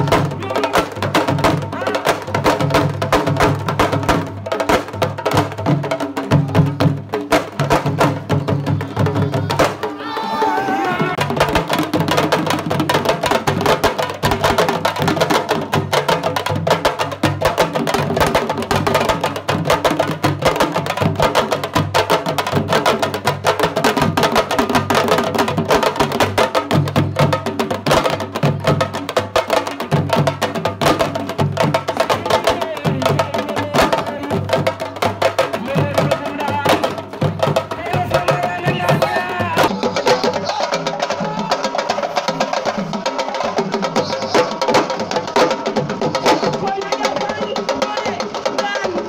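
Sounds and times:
drum ensemble playing fast rhythm: 0:00.0 - 0:49.0.

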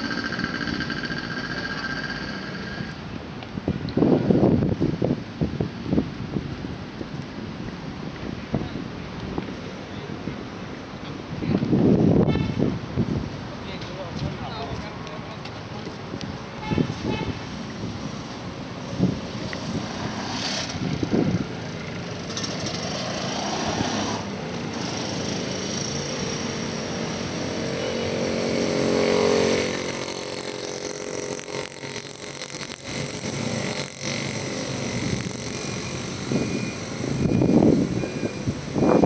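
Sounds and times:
outdoor street noise: 0:00.0 - 0:39.0
vehicle engine passing: 0:19.0 - 0:38.9.

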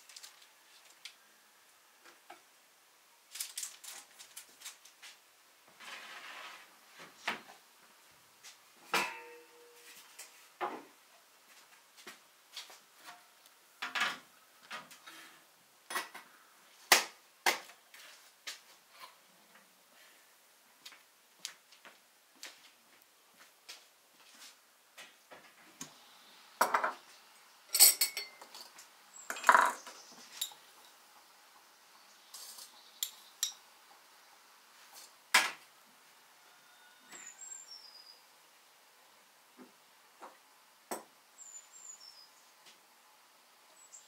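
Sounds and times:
dishes and utensils clinking: 0:08.9 - 0:09.8, 0:27.7 - 0:30.6.

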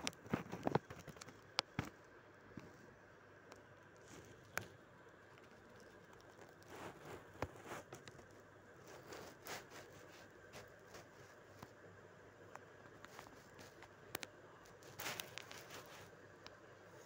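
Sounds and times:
soft rustles: 0:03.8 - 0:17.0
faint clicks: 0:12.4 - 0:16.7.

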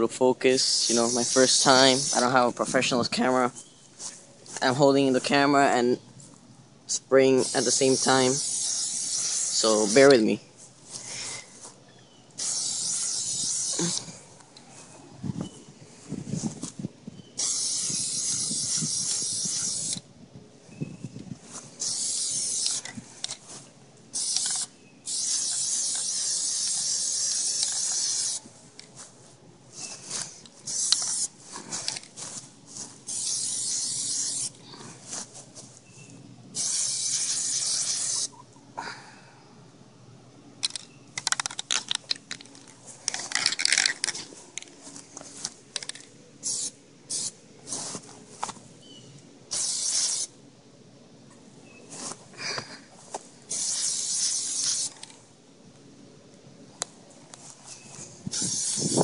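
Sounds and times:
aerosol can spraying: 0:00.6 - 0:02.4, 0:07.4 - 0:10.1, 0:12.4 - 0:14.1, 0:17.4 - 0:20.0, 0:21.8 - 0:22.9, 0:24.2 - 0:28.5, 0:30.0 - 0:35.3, 0:36.6 - 0:38.3, 0:46.4 - 0:48.0, 0:49.5 - 0:50.3, 0:53.5 - 0:55.1, 0:58.3 - 0:59.0
handling clicks and rustling: 0:40.6 - 0:46.2.

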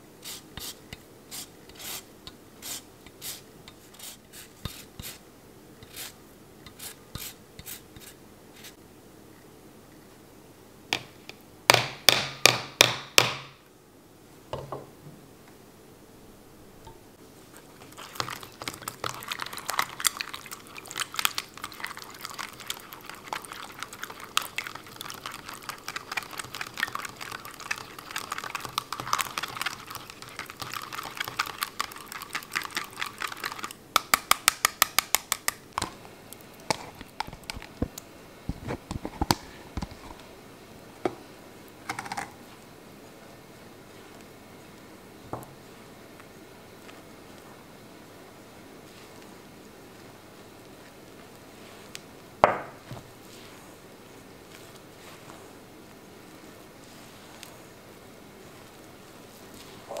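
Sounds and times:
utensil beating mixture in cup: 0:00.2 - 0:05.2, 0:05.8 - 0:08.8, 0:17.4 - 0:38.0
soft thumps into bowl: 0:14.5 - 0:15.2.

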